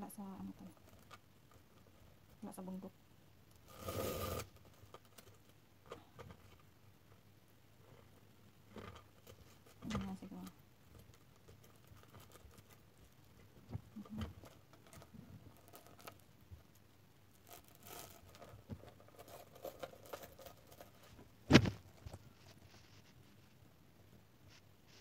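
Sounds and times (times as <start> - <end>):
faint rustles: 7.8 - 25.0.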